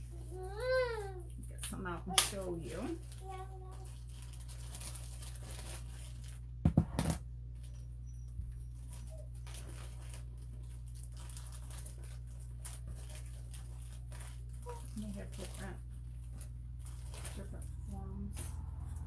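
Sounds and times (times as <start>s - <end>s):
low electrical hum: 0.0s - 19.0s
packaging rustling: 2.8s - 6.5s, 8.7s - 19.0s.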